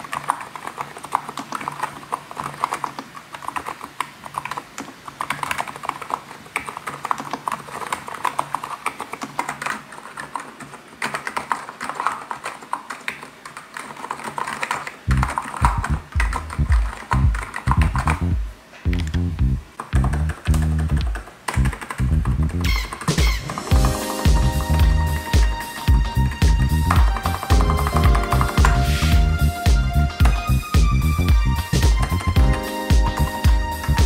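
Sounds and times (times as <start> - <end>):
soft bubbly keyboard typing: 0.0 - 18.3, 19.7 - 29.2
music with heavy bass beat: 15.1 - 34.0.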